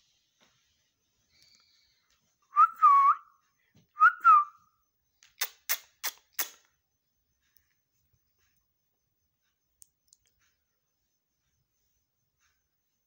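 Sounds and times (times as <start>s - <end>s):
whistled calls: 1.3s - 3.4s, 4.0s - 4.7s
sharp clicks: 5.2s - 6.7s.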